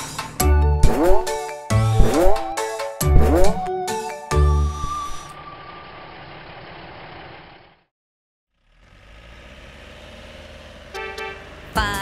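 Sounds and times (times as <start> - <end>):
engine with wavering hum: 0.6 - 3.7, 4.4 - 7.8, 8.5 - 12.0
cartoon engine running: 0.8 - 3.7.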